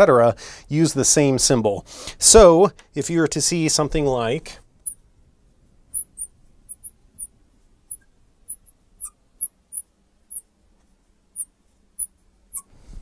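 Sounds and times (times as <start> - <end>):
marker squeaking on glass: 5.9 - 10.5, 11.4 - 12.8.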